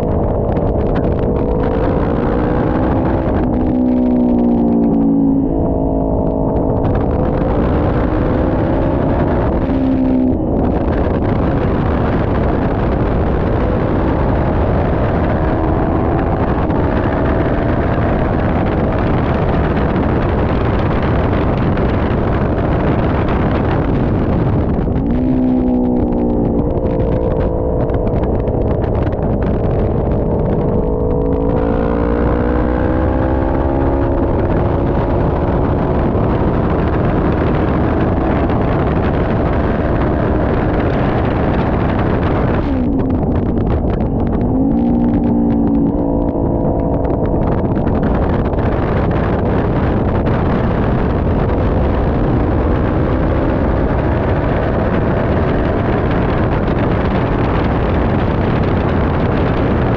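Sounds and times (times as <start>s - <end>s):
motorcycle engine running hard: 0.0s - 59.9s
wind rushing on microphone: 0.0s - 59.9s.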